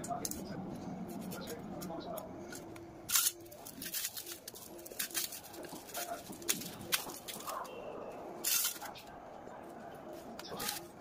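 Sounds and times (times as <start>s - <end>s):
onion skins crackling: 2.5s - 9.2s, 10.0s - 11.0s.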